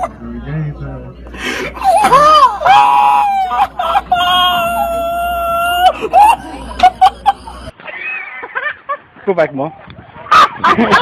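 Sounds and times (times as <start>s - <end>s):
person crying and yelping: 1.7s - 8.4s
person screaming: 1.8s - 6.8s.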